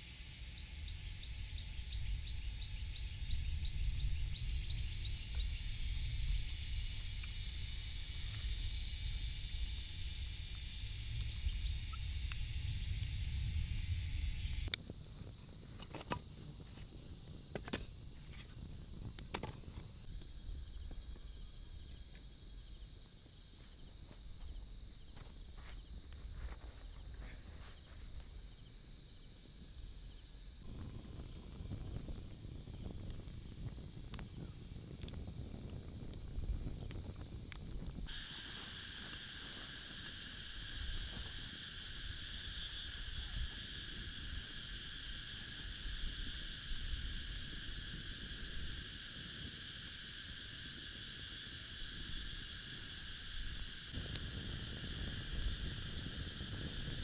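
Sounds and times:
insects chirring: 0:00.0 - 0:57.0
pulsing insect call: 0:13.8 - 0:20.2, 0:30.6 - 0:57.0.

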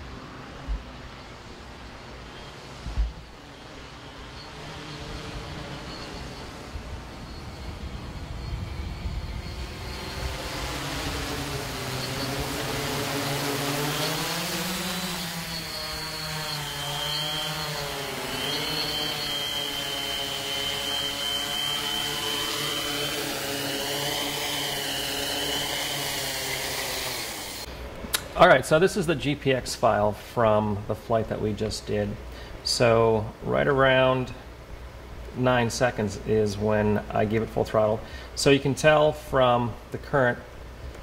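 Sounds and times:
drone motors and propellers humming: 0:00.0 - 0:28.1
high whine: 0:00.0 - 0:41.0.

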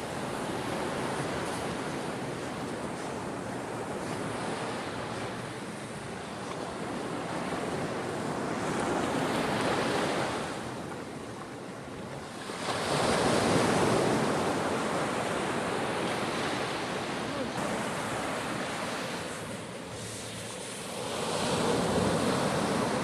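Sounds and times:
small waves breaking on beach: 0:00.0 - 0:23.0.

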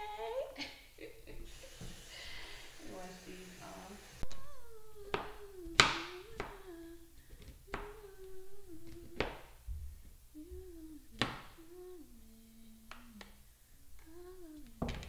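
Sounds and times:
person humming: 0:00.0 - 0:00.6, 0:02.4 - 0:09.4, 0:10.3 - 0:13.4, 0:14.0 - 0:15.0.

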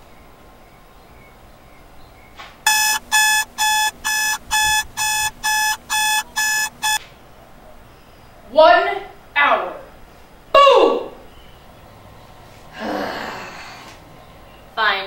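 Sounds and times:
alarm clock beeping: 0:02.7 - 0:07.0.

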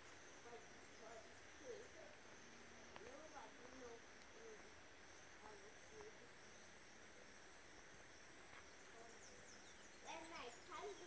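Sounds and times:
faint forest ambience: 0:00.0 - 0:11.0
steady high-pitched hum: 0:00.0 - 0:11.0
faint low hoot-like calls: 0:00.3 - 0:07.6.

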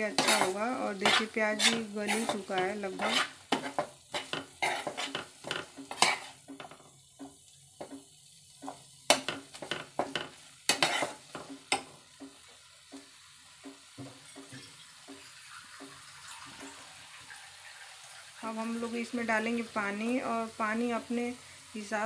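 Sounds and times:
spatula scraping a pan: 0:00.0 - 0:12.4
light sizzle: 0:00.0 - 0:22.0.

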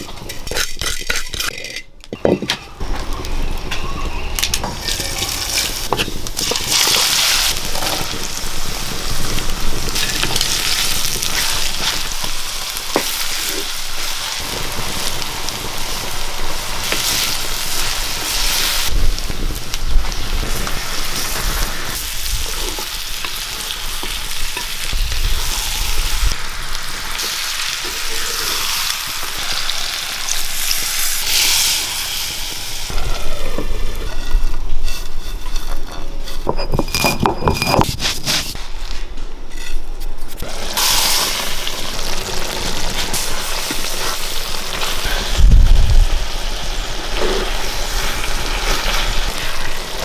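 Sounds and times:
chicken sizzling in a pan: 0:04.8 - 0:35.0, 0:40.4 - 0:50.0
spatula scraping a pan: 0:33.0 - 0:38.6.

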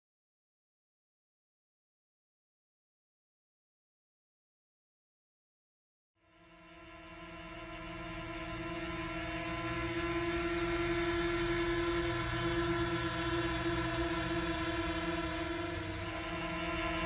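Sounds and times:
sustained drone note: 0:06.4 - 0:17.0.

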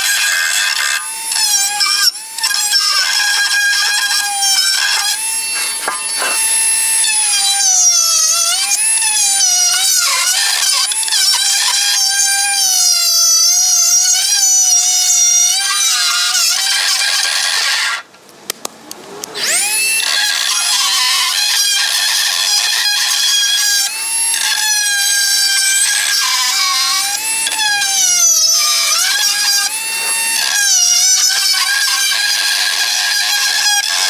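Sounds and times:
power tool whining: 0:00.0 - 0:18.1, 0:19.3 - 0:34.0
power tool clicks: 0:02.6 - 0:06.6.

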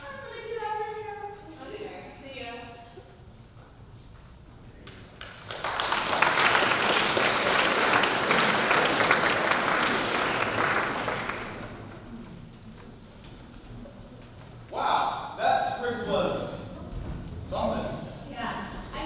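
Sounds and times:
audience applauding: 0:04.9 - 0:12.2.

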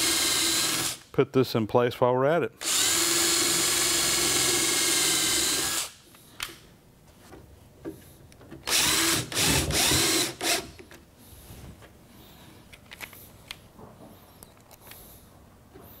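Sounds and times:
cordless drill motor running: 0:00.0 - 0:01.0, 0:02.6 - 0:06.0, 0:08.7 - 0:10.8.

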